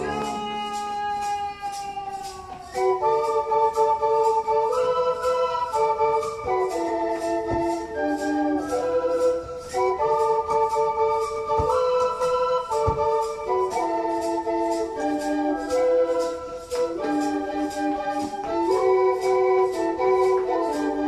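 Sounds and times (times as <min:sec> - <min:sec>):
electronic organ melody: 0:00.0 - 0:01.0
light steady beat: 0:00.0 - 0:21.0.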